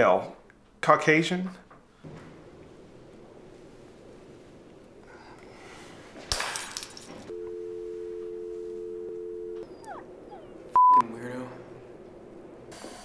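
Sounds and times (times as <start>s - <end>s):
two-note telephone dial tone: 7.3s - 9.7s.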